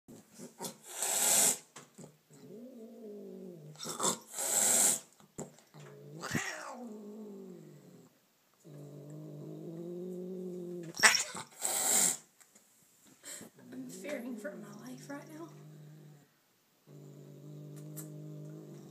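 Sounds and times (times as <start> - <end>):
cat hissing: 0.3 - 1.7, 3.8 - 5.1, 6.2 - 7.0, 10.9 - 12.3
cat growling yowls: 6.1 - 7.6, 9.7 - 12.2.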